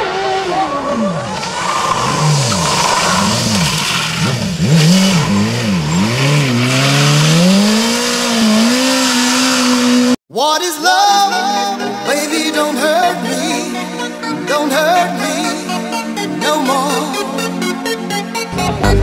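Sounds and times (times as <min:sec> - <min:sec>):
motorcycle engine revving: 0:00.0 - 0:10.2
tyre squealing and hissing: 0:00.6 - 0:10.0.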